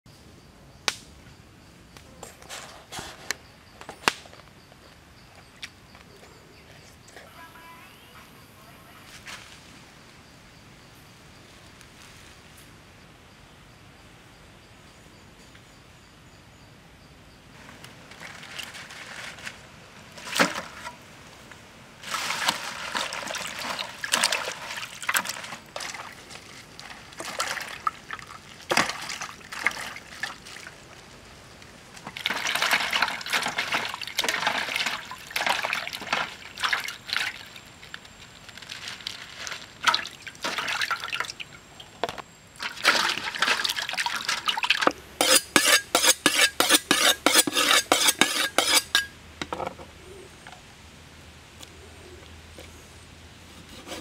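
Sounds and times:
water splashing in basin: 22.0s - 30.8s, 32.1s - 37.6s, 39.8s - 41.5s, 42.6s - 44.9s.

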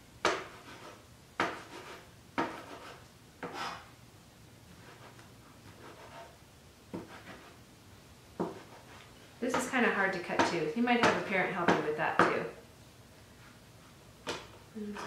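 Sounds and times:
knife chopping on cutting board: 0.2s - 3.8s, 6.9s - 7.5s, 8.4s - 8.8s, 9.5s - 12.4s.

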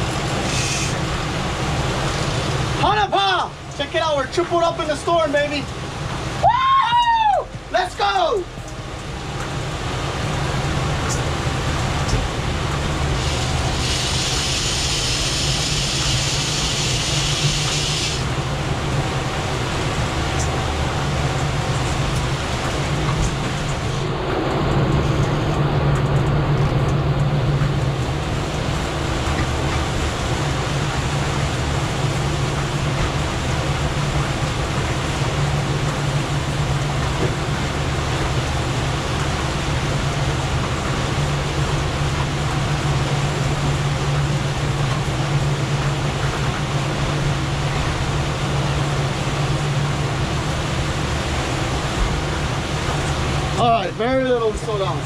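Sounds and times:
outboard motors humming: 0.0s - 55.0s
wind and water rushing: 0.0s - 55.0s
loud high hiss: 0.4s - 1.0s, 13.1s - 18.4s.

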